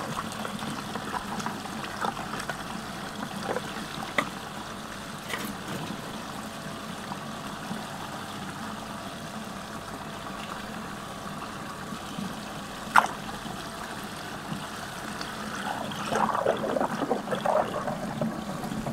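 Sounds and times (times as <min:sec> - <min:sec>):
water swirling down drain: 0:14.4 - 0:18.9.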